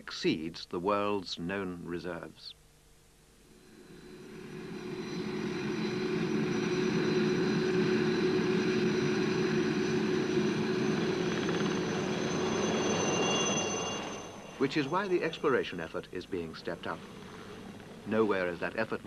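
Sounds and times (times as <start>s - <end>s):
high-pitched whine: 3.4s - 19.0s
helicopter rotor hum: 3.6s - 18.6s.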